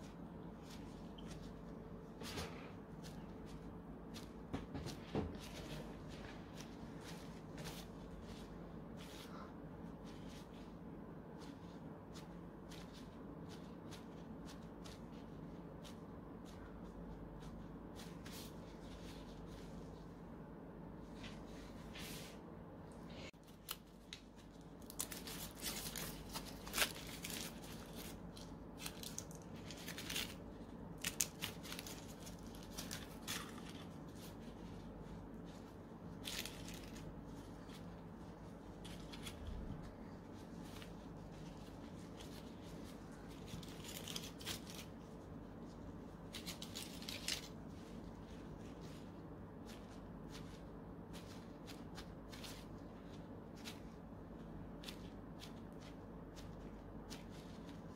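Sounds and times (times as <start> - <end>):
plastic gloves rustling: 0.0 - 22.4, 23.1 - 57.9
foil wrappers crinkling and tearing: 23.4 - 35.2, 36.1 - 45.2, 46.2 - 53.9.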